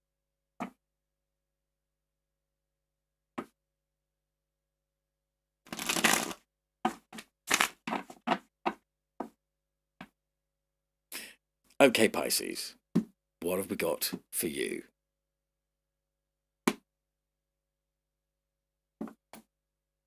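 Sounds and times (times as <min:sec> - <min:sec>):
card deck riffle shuffle: 0:05.7 - 0:08.2
cards slapping and tapping: 0:05.7 - 0:08.8.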